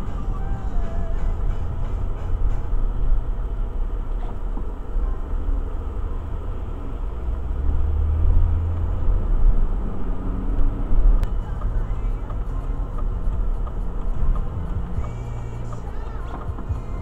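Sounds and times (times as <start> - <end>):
car engine and tyre rumble: 0.0 - 17.0.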